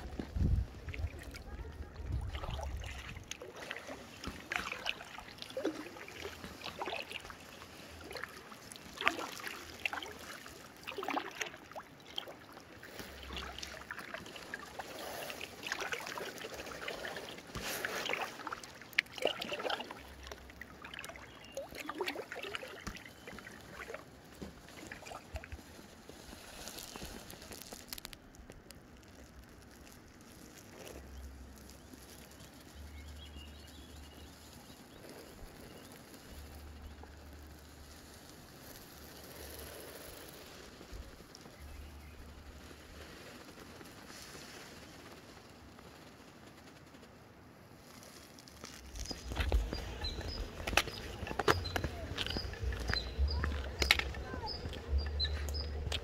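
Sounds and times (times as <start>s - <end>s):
paddle splashing in water: 0.0s - 26.6s, 48.7s - 56.0s
water dripping off paddle: 0.2s - 25.6s, 49.0s - 56.0s.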